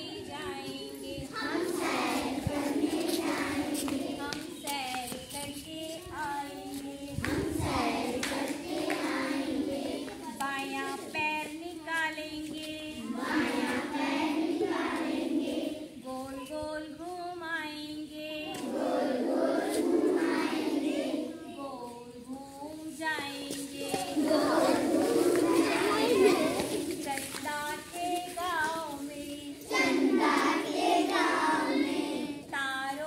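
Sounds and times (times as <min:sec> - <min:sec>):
woman singing: 0:00.0 - 0:01.5, 0:04.2 - 0:07.5, 0:10.2 - 0:13.7, 0:16.0 - 0:18.6, 0:21.3 - 0:29.9, 0:32.4 - 0:33.0
children singing in chorus: 0:00.0 - 0:04.7, 0:06.6 - 0:11.0, 0:12.9 - 0:16.0, 0:18.4 - 0:21.6, 0:23.2 - 0:27.3, 0:29.4 - 0:32.5.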